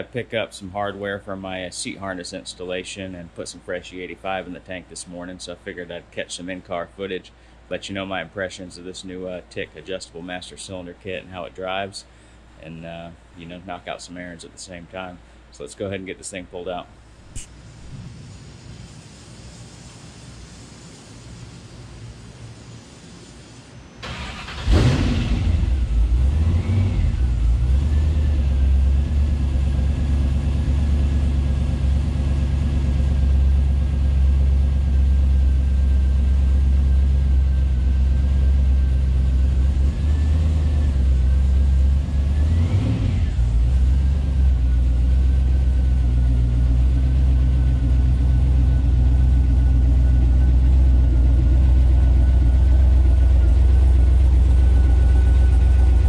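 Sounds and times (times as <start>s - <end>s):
truck engine starting and idling: 24.0s - 56.0s.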